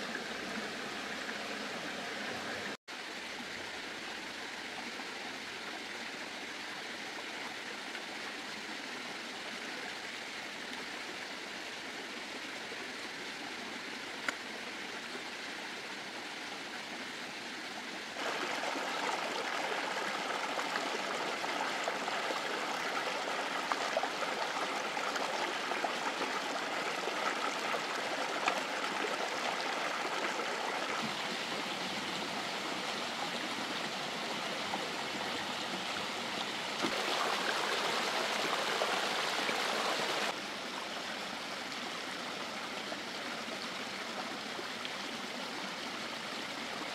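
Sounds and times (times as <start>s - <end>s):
running water rushing: 10.2s - 46.9s.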